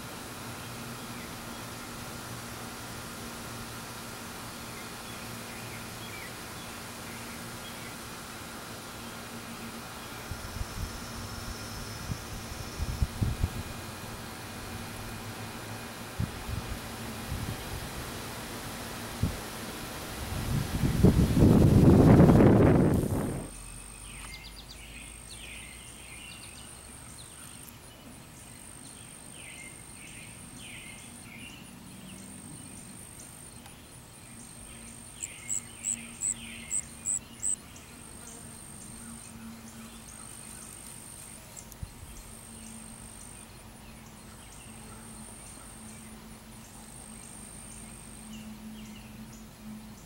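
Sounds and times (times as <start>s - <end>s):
faint low hum: 0.0s - 50.0s
insects chirping in trills: 4.4s - 17.9s, 21.3s - 50.0s
sharp high chirps: 35.2s - 37.6s.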